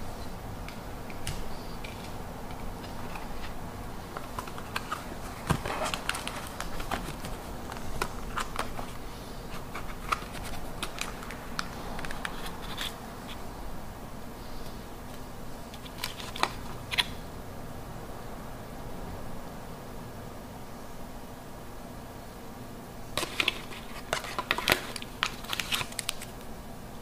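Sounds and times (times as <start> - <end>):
faint steady hum: 0.0 - 27.0
plastic box clicks and rustles: 4.2 - 9.0, 9.6 - 13.0.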